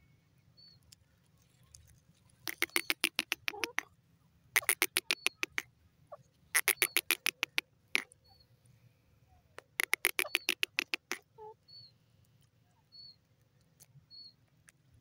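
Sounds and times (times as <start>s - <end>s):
bird calling in rapid clipped notes: 2.4s - 3.9s, 4.6s - 5.7s, 6.6s - 8.4s, 9.6s - 11.5s.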